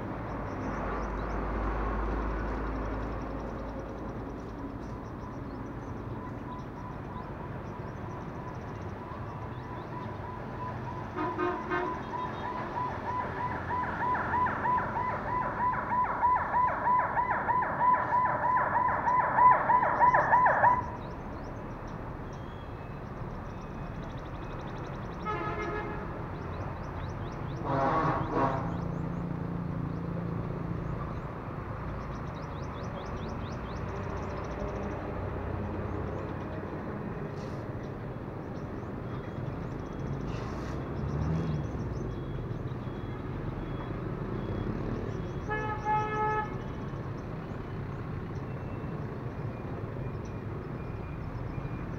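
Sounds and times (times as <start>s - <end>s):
pulsing electronic alarm: 6.0s - 21.7s, 41.9s - 47.1s, 48.4s - 51.9s
faint bird chirps: 20.8s - 25.2s.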